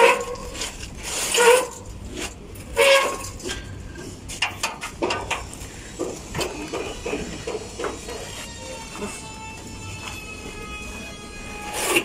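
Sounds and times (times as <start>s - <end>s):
metal unit knocking and scraping: 2.9s - 8.3s.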